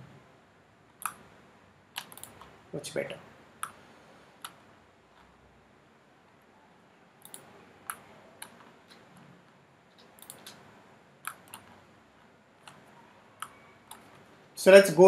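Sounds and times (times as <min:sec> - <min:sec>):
faint room hiss: 0:00.0 - 0:15.0
computer mouse and keyboard clicks: 0:01.0 - 0:01.3, 0:02.0 - 0:02.6, 0:07.2 - 0:14.2.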